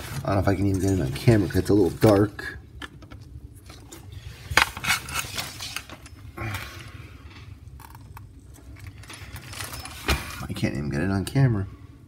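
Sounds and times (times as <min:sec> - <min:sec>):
steady low hum: 0:00.0 - 0:12.0
scraping rustle: 0:03.7 - 0:06.1.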